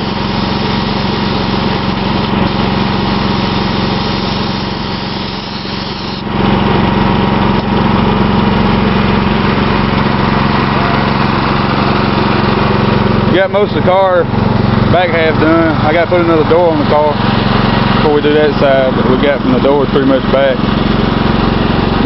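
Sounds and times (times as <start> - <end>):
air hissing: 0.0 - 6.3
small gas engine running: 0.0 - 22.0.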